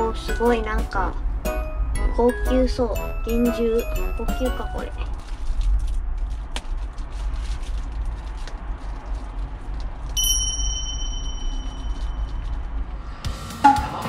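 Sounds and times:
plastic wrapping crinkling: 4.3s - 10.2s, 11.4s - 12.9s
bright ringing ding: 10.2s - 12.2s.

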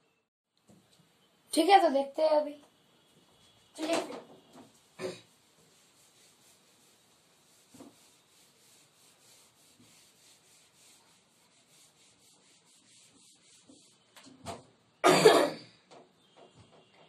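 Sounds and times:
eraser rubbing on whiteboard: 4.7s - 14.1s.

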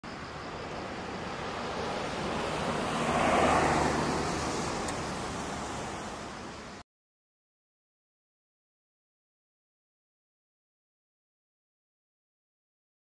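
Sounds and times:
tyre hiss on wet road: 0.2s - 6.8s.

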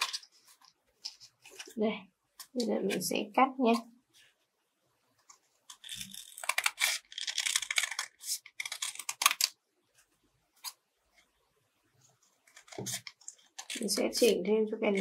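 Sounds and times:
scissors snipping paper: 5.7s - 9.6s, 12.4s - 15.0s
paper rustling: 12.0s - 15.0s.

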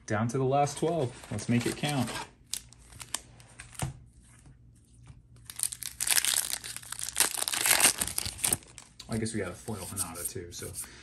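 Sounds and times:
foil wrapper tearing and crinkling: 5.4s - 8.9s.

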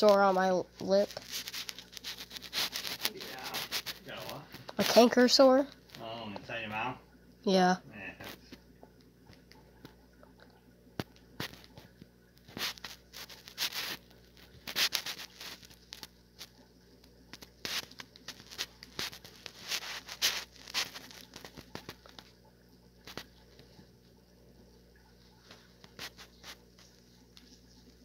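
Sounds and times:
paper crinkling and tearing: 0.0s - 6.0s, 12.5s - 16.6s, 17.4s - 22.3s, 23.0s - 23.4s, 25.8s - 26.9s.

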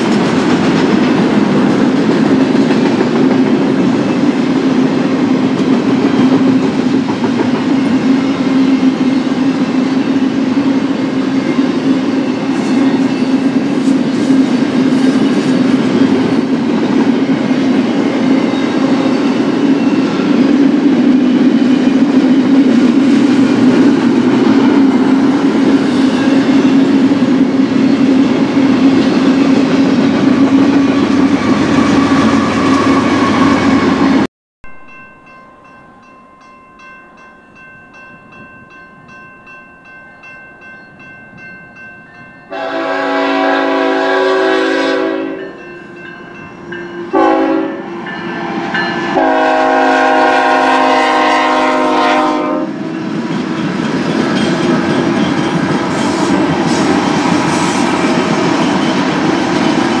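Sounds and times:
approaching train rumble: 0.0s - 60.0s
crossing bell ringing: 7.5s - 13.8s, 31.7s - 43.0s, 45.2s - 50.1s, 52.6s - 56.4s, 58.2s - 60.0s
locomotive air horn blasts: 31.4s - 34.3s, 42.5s - 45.6s, 47.1s - 47.9s, 49.1s - 52.8s
train wheels clacking over rail: 52.9s - 60.0s.

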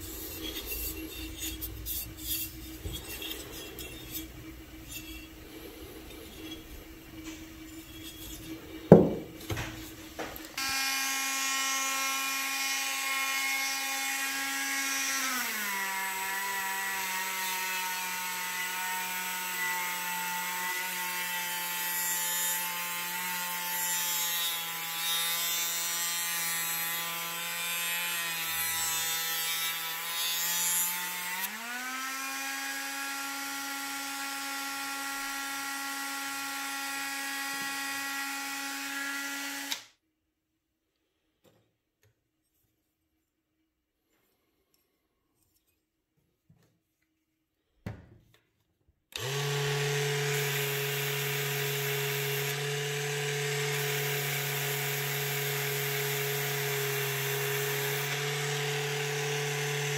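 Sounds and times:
rotary sanding tool whining: 0.0s - 39.9s, 49.1s - 59.9s
sharp knock: 8.9s - 9.4s.

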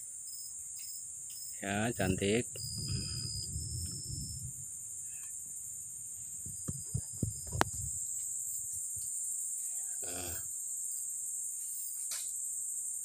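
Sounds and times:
high-pitched insect chorus: 0.0s - 13.0s
microphone handling rumble: 1.8s - 9.0s.

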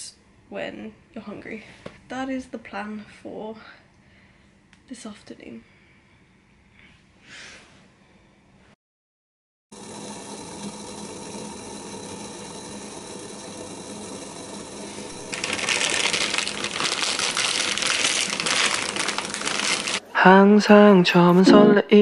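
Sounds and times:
plastic packet crinkling: 15.2s - 20.0s.

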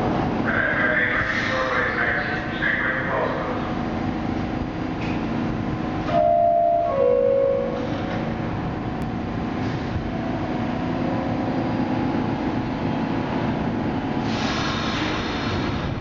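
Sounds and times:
subway train rumbling in tunnel: 0.0s - 16.0s
subway train horn: 6.0s - 8.6s.

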